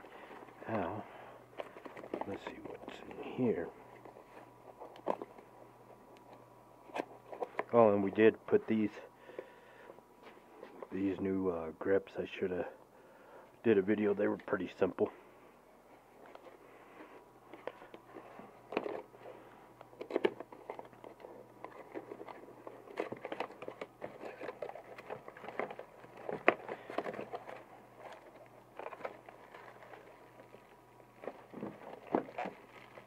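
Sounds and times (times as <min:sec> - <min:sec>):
packaging rustling and crinkling: 0:00.0 - 0:08.2, 0:15.8 - 0:33.0.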